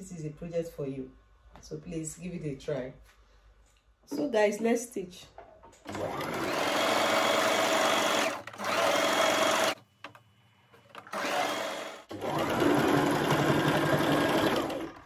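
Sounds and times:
sewing machine stitching: 5.8 - 9.8, 10.9 - 15.0.

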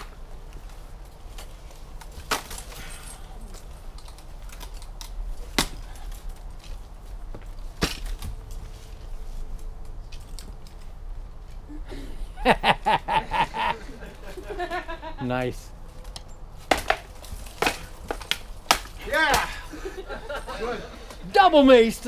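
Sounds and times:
sharp wooden cracks of weapons: 0.9 - 6.9, 7.5 - 8.6, 16.0 - 19.7.

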